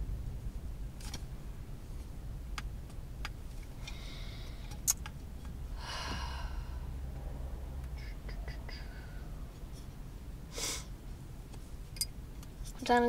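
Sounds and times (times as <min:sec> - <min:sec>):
steady low rumble: 0:00.0 - 0:13.0
sharp clicks: 0:04.7 - 0:05.6.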